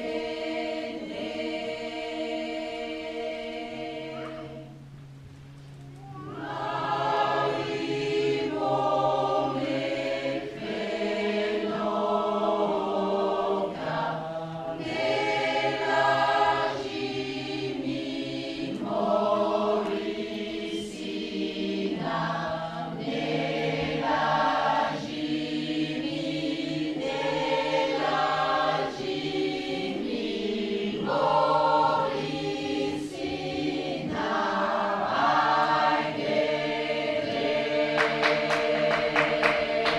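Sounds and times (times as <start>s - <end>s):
choir singing sustained chords: 0.0s - 39.9s
low held note: 5.8s - 7.0s.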